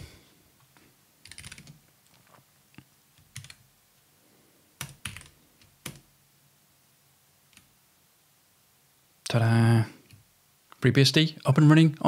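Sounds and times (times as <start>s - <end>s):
computer keyboard typing: 1.2s - 2.3s, 3.2s - 3.7s, 4.8s - 6.1s.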